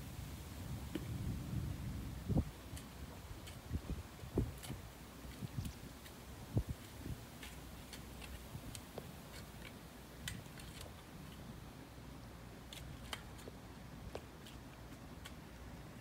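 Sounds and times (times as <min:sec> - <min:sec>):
faint irregular clicks: 0:04.4 - 0:11.5, 0:12.6 - 0:16.0.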